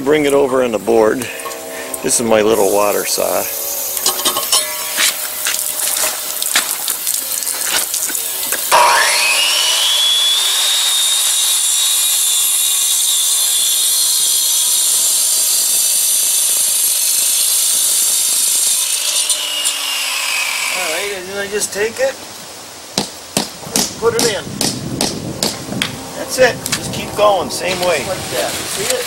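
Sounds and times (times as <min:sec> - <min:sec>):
cut-off saw cutting concrete: 0:01.2 - 0:21.4
knocks: 0:23.0 - 0:25.9.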